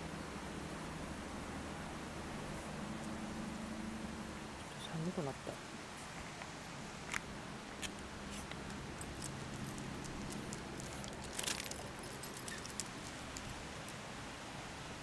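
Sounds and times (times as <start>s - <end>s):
collar tag jingle: 8.4s - 14.0s
dog collar tag clicking: 8.6s - 13.6s.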